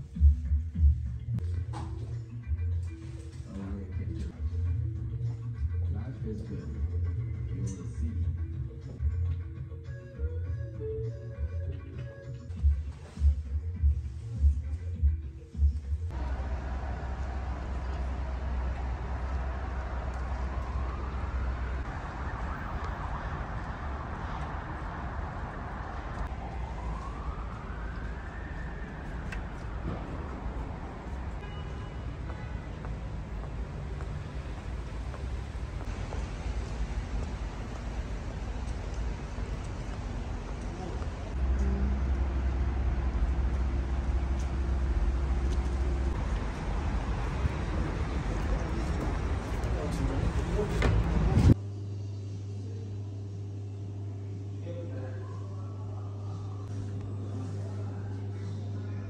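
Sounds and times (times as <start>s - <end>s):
city street traffic: 0.0s - 54.6s
vehicle engine low hum: 16.0s - 54.6s
emergency siren wailing: 16.1s - 31.4s
steady low rumble: 16.1s - 31.4s, 32.0s - 51.6s.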